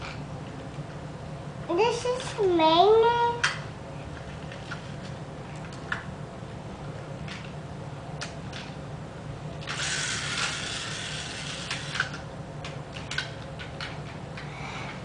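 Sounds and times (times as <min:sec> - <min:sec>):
toy car mechanism whirring: 0:09.6 - 0:12.2
toy cars clicking together: 0:09.7 - 0:12.2.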